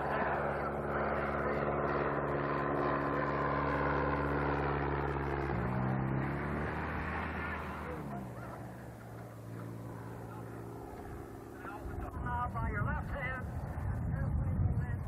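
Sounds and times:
light plane engine and propeller: 0:00.0 - 0:15.0.

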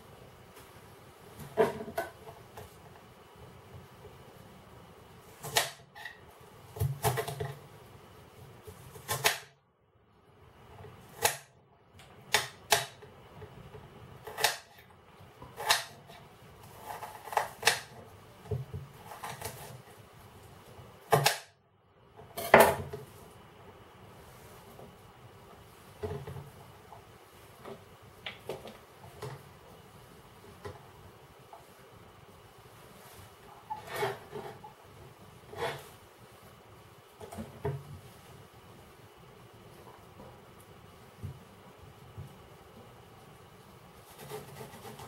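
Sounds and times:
knife chopping on cutting board: 0:21.1 - 0:21.5.

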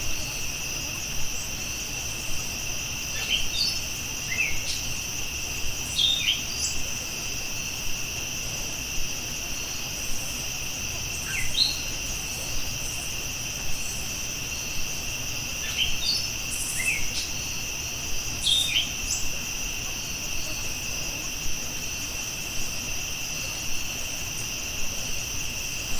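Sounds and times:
high insect chirring: 0:00.0 - 0:08.9, 0:09.5 - 0:25.9.

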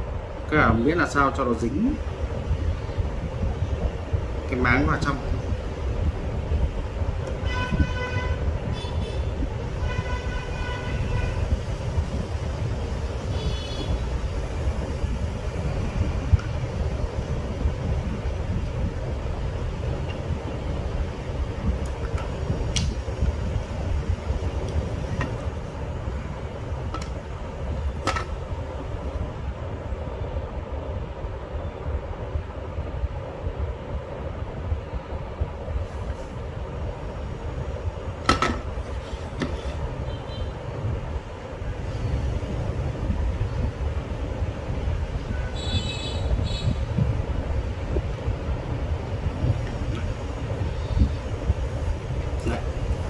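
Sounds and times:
traffic rumble: 0:00.0 - 0:53.0
vehicle horns honking: 0:07.4 - 0:11.5, 0:13.3 - 0:14.1, 0:45.4 - 0:46.9.

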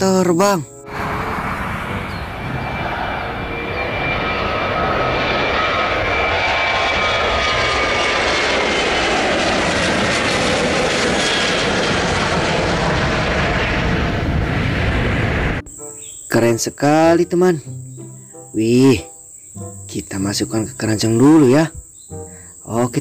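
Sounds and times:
jet airliner taking off: 0:00.0 - 0:23.0
high whining engine tones: 0:00.7 - 0:16.4.

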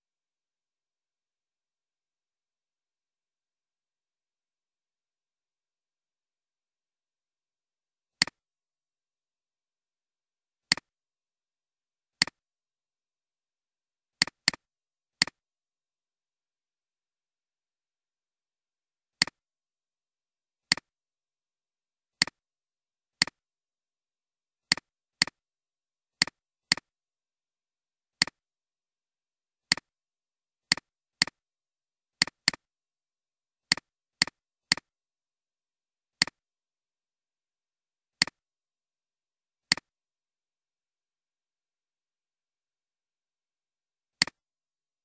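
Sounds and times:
computer mouse clicks: 0:39.7 - 0:39.9.

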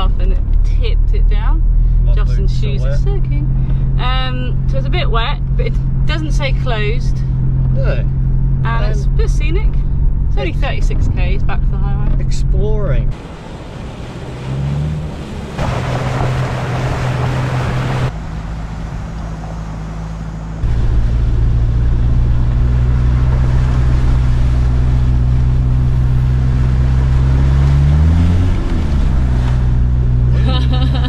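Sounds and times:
vehicle engine running: 0:00.0 - 0:31.0
water splashing: 0:13.1 - 0:31.0.

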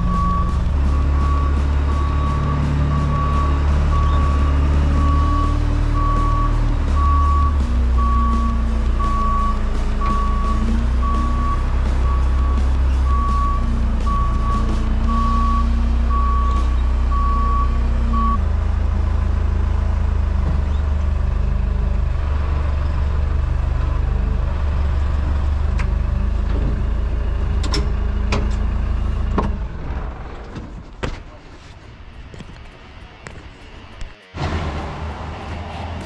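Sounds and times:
reversing alarm beeps: 0:00.0 - 0:18.4
diesel engine running: 0:00.0 - 0:36.0.

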